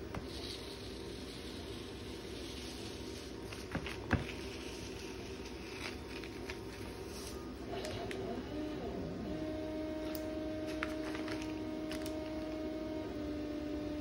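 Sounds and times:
tape peeling rustle: 0.3 - 7.5, 10.6 - 12.6.

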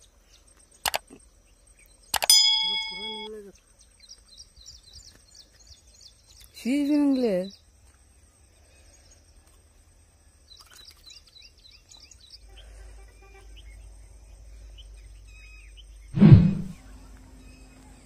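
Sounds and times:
small birds chirping: 0.0 - 18.0
loud burst of sound: 16.2 - 16.8.

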